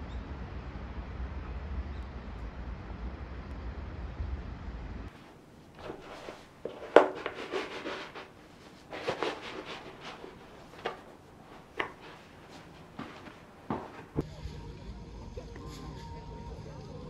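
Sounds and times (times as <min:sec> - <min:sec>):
shoe soles shuffling on floor: 0:05.1 - 0:14.2
canvas and laces rubbing: 0:05.2 - 0:14.2.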